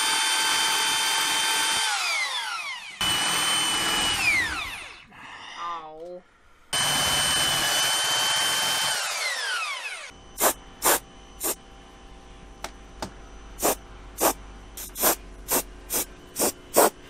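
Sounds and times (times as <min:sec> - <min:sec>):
cordless drill spinning down: 0:00.0 - 0:05.0, 0:06.8 - 0:10.1
aerosol spray can bursts: 0:10.4 - 0:11.6, 0:13.6 - 0:17.0.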